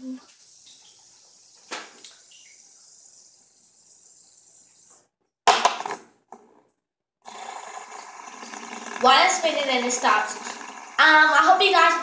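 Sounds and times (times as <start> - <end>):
fidget spinner whirring: 7.3 - 12.0.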